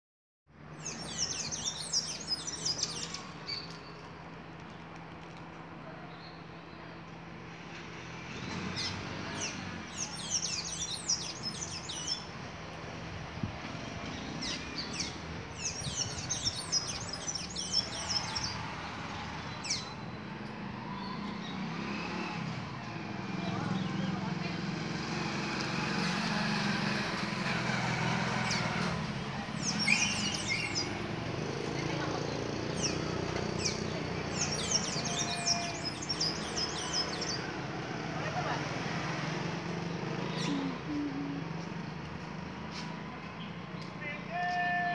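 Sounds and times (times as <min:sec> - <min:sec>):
songbird twittering: 0:29.6 - 0:31.0.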